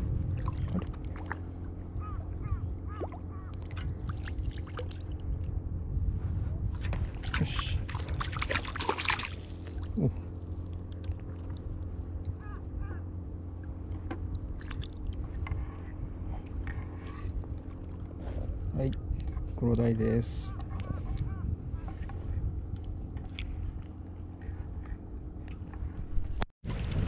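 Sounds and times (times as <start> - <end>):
steady low hum: 0.0 - 27.0
fish splashing at water surface: 7.3 - 9.8.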